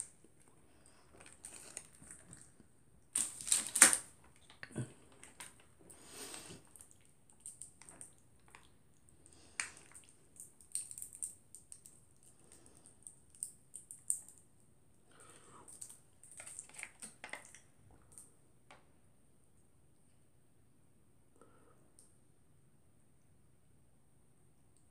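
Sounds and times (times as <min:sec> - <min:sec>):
foil packet crinkling: 0:00.9 - 0:05.7, 0:15.8 - 0:17.6.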